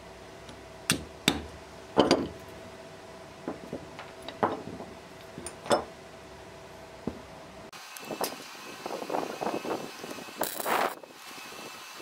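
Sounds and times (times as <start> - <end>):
metal clamp parts knocking on wood: 2.0 - 2.4, 3.4 - 5.9.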